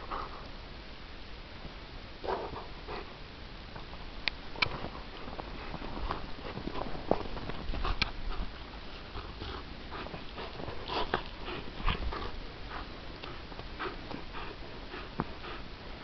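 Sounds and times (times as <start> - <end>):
dog breathing noises: 0.0 - 0.5, 2.2 - 3.2, 4.6 - 16.0.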